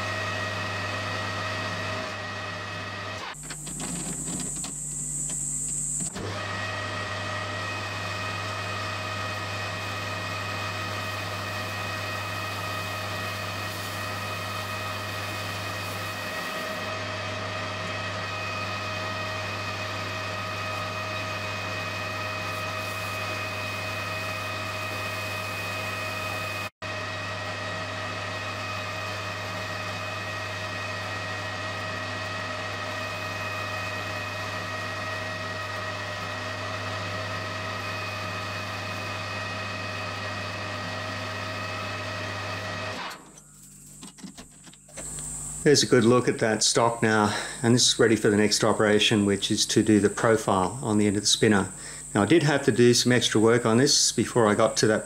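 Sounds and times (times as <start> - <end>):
metal lathe humming and whining: 0.0 - 43.7.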